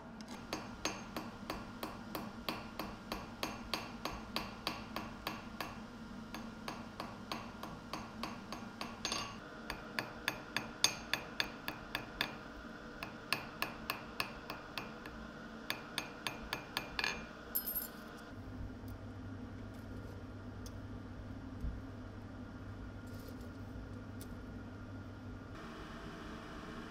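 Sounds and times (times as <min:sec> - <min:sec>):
hammer tapping on anvil: 0:00.3 - 0:18.0
high metallic clink: 0:17.0 - 0:18.1.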